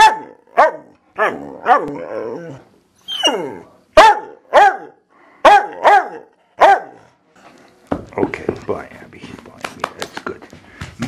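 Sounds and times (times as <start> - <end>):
dog barking: 0.0 - 2.0, 4.0 - 7.1.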